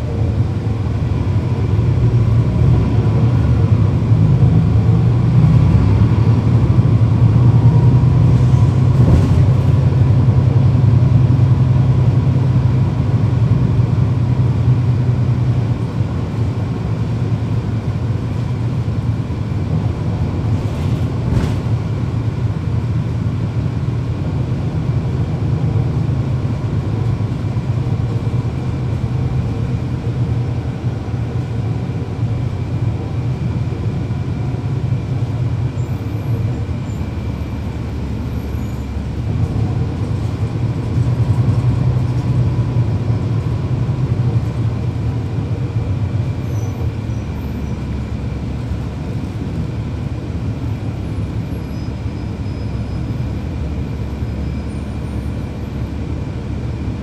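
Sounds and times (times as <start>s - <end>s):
bus diesel engine running: 0.0s - 57.0s.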